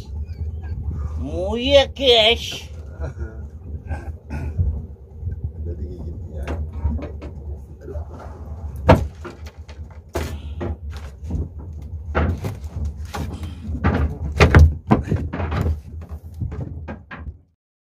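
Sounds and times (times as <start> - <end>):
steady low hum: 0.0 - 17.2
bare footsteps on wooden deck: 8.8 - 17.4
gear knocking on wooden deck: 8.8 - 17.5.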